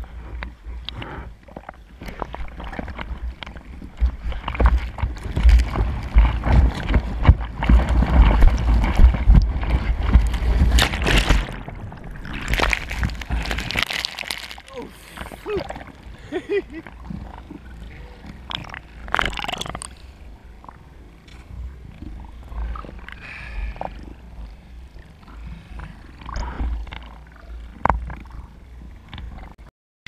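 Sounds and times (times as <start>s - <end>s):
deep rumble: 0.0s - 29.6s
sea water sloshing and splashing: 0.0s - 29.6s
whitewater churning: 3.9s - 19.9s.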